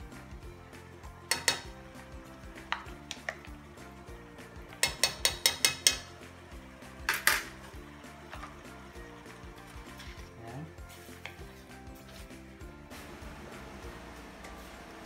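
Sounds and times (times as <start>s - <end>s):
background music: 0.0s - 15.0s
wooden spatula knocking on pan: 1.2s - 1.8s, 2.6s - 3.6s, 4.7s - 6.1s.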